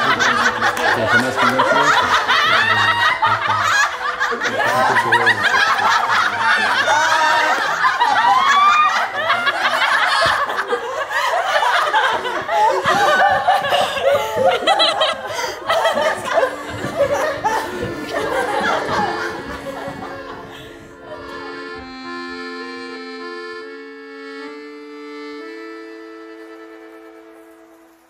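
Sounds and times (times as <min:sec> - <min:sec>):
women laughing together: 0:00.0 - 0:21.9.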